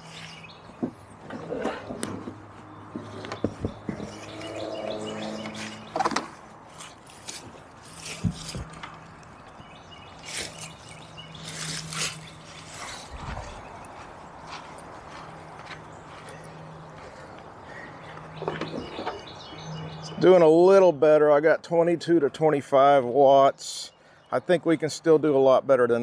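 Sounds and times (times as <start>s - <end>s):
birds chirping faintly: 0.0s - 26.0s
knocks and clicks of handling: 0.8s - 4.2s, 5.4s - 6.4s
rustling of dry leaves: 4.0s - 18.8s.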